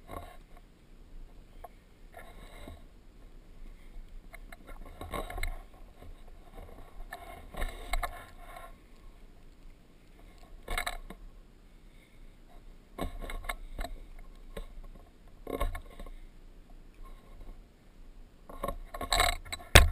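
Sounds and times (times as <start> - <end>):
camera scraping and knocking on rock: 0.0 - 0.7, 1.5 - 2.9, 3.7 - 11.2, 13.0 - 16.2, 18.5 - 19.9.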